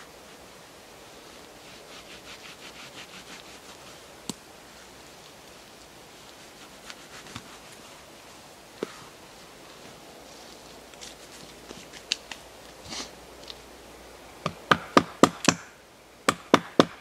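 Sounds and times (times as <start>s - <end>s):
knife sawing through bark: 1.6s - 4.0s, 6.3s - 7.9s.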